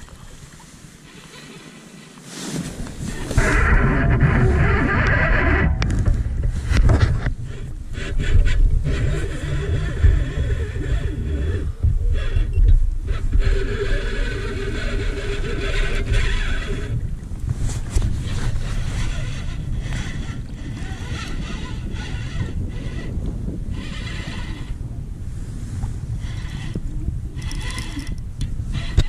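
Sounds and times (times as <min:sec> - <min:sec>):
wind buffeting microphone: 0:02.6 - 0:29.0
whirring whine: 0:02.9 - 0:25.1, 0:26.1 - 0:29.0.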